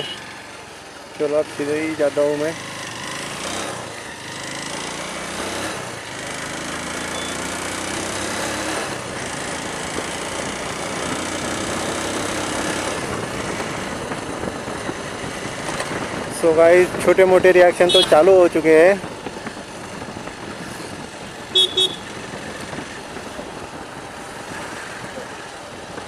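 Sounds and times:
motorcycle engine running: 0:00.0 - 0:26.0
wind noise on microphone: 0:09.8 - 0:26.0.

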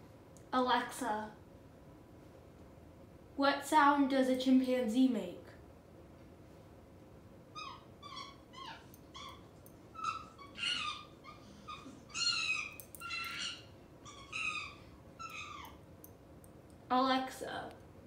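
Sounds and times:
chimpanzee hooting calls: 0:07.6 - 0:15.8.

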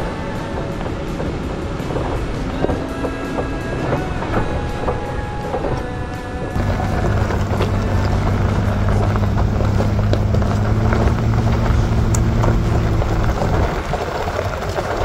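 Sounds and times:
low engine drone: 0:00.0 - 0:15.0
tyres crunching on gravel: 0:06.5 - 0:15.0.

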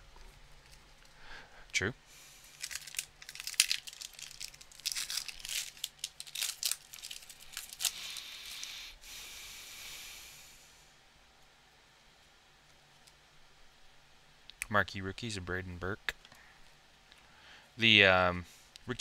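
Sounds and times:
plastic wrapper tearing and crinkling: 0:02.5 - 0:08.6.

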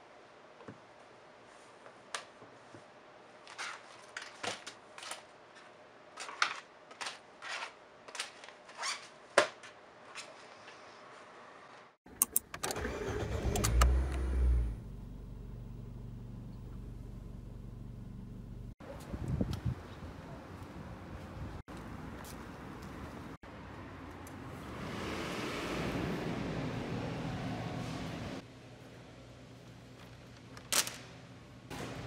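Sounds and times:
car engine starting and idling: 0:12.5 - 0:18.8.

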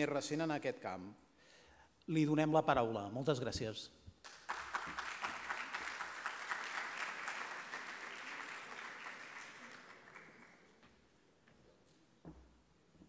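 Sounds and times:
audience applauding: 0:04.2 - 0:10.9.

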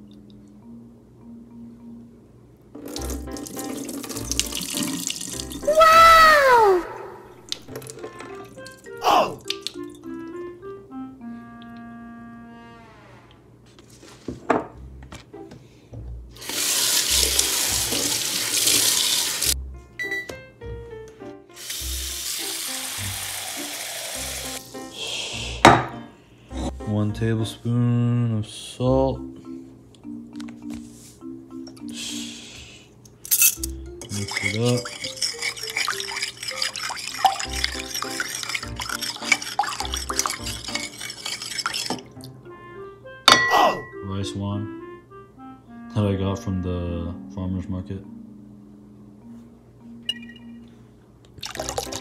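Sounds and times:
tap water running into bowl: 0:02.8 - 0:05.7, 0:07.5 - 0:10.4, 0:16.4 - 0:19.6, 0:21.6 - 0:24.6, 0:34.0 - 0:42.1, 0:51.4 - 0:52.0
water swishing and splashing: 0:34.1 - 0:42.1.

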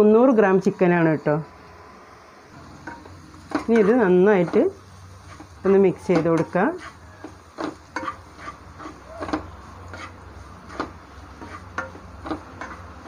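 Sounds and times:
spatula scraping a pan: 0:02.6 - 0:13.0.

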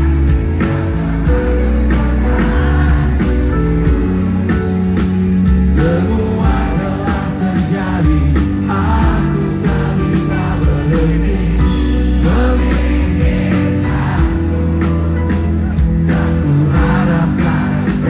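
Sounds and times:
bass guitar: 0:00.0 - 0:18.0
electric guitars: 0:00.0 - 0:18.0
steady drum beat: 0:00.0 - 0:18.0
person singing: 0:01.3 - 0:04.0, 0:05.6 - 0:14.8.

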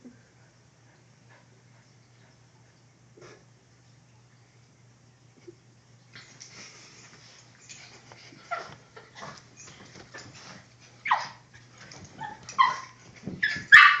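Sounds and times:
paws scuffling on blankets: 0:06.6 - 0:13.8
dogs yipping and snarling: 0:10.1 - 0:14.0.

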